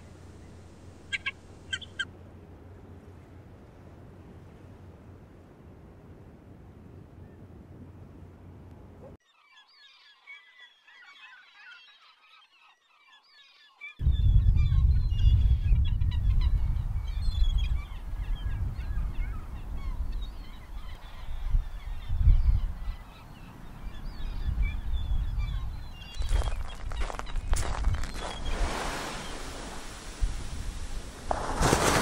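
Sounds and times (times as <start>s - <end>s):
birds chirping: 0.0s - 2.1s, 9.2s - 31.2s
wind rumbling on microphone: 14.0s - 32.0s.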